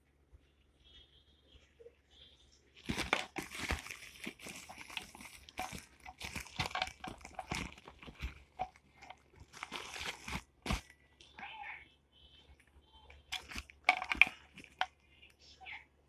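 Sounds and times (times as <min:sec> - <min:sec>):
plastic packaging crinkling: 0:02.7 - 0:11.3, 0:12.5 - 0:15.1.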